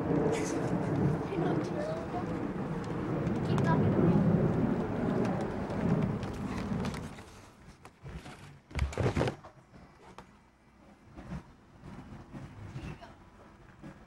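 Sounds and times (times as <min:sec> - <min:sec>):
low rumble: 0:00.0 - 0:07.3.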